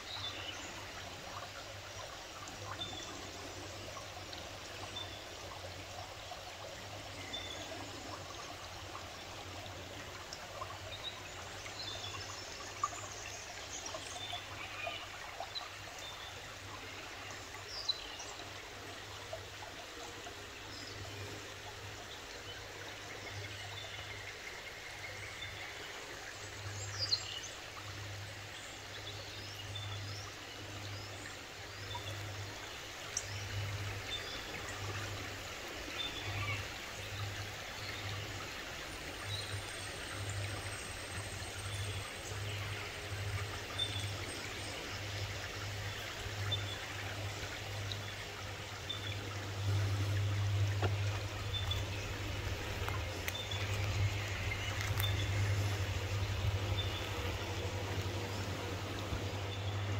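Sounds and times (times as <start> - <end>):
river water flowing: 0.0 - 59.9
small birds chirping: 48.8 - 59.9.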